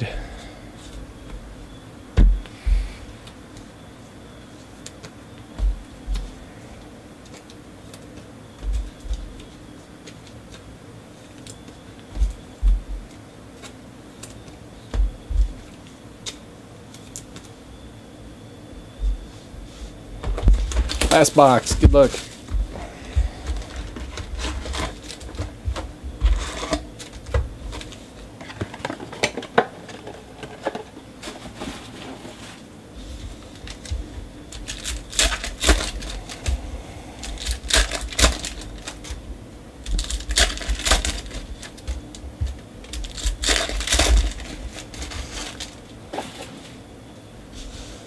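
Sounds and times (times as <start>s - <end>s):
foil wrappers tearing and crinkling: 23.5s - 25.5s, 34.5s - 36.6s, 37.2s - 39.2s, 39.8s - 42.2s, 42.8s - 45.8s
cards rustling and tapping: 33.2s - 39.2s, 39.8s - 46.6s.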